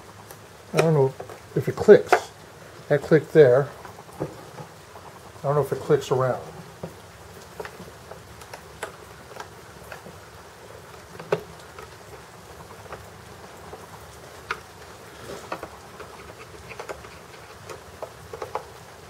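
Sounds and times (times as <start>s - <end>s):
steady low hiss: 0.0s - 19.0s
plastic parts clicking and tapping: 0.7s - 2.4s, 10.9s - 19.0s.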